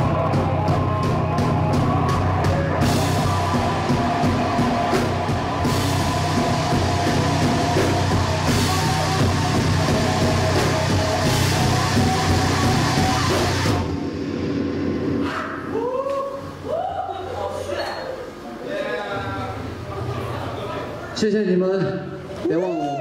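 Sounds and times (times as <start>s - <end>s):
rock band playing: 0.0s - 15.2s.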